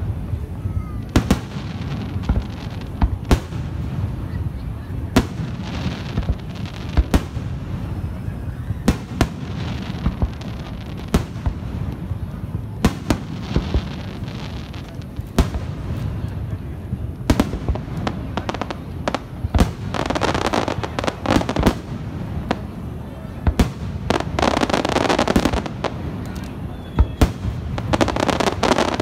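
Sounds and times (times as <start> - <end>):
continuous low rumble: 0.0 - 29.0.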